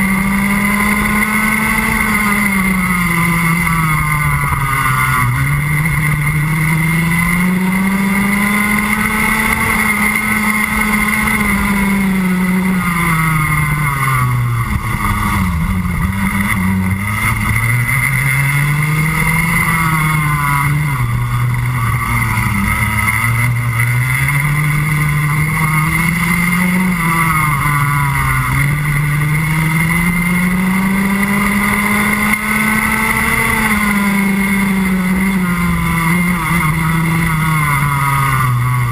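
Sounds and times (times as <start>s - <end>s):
kart engine accelerating: 0.0s - 38.9s.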